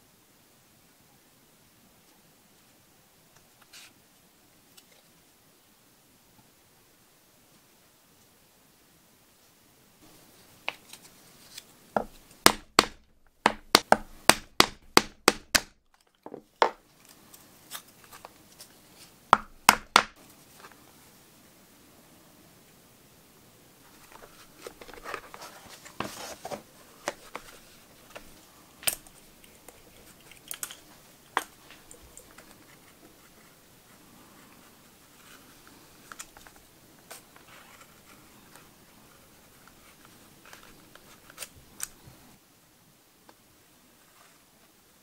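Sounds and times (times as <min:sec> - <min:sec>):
leather scraping and rustling: 0:24.0 - 0:31.0.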